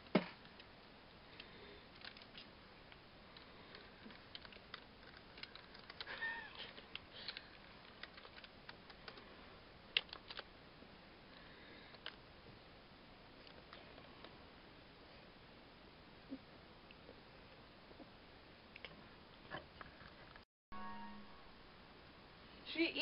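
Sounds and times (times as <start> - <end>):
keyboard keys clicking: 4.1 - 6.1, 7.3 - 9.2, 10.0 - 10.4
high whine: 20.7 - 22.2.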